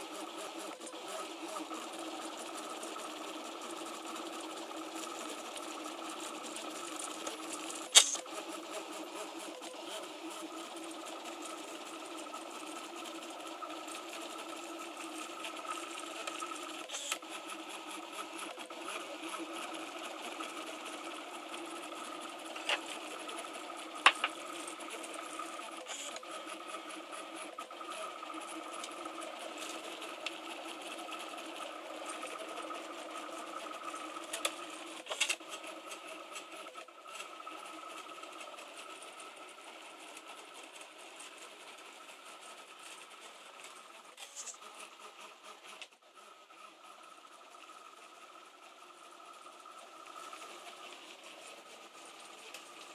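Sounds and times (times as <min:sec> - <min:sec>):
printer mechanical whir: 0:00.0 - 0:52.9.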